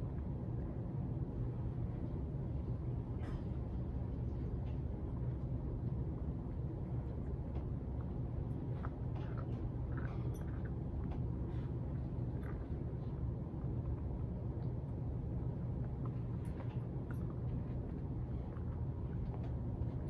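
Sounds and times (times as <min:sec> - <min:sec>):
low background hum: 0:00.0 - 0:20.0
puppy chewing dog treats: 0:04.4 - 0:20.0.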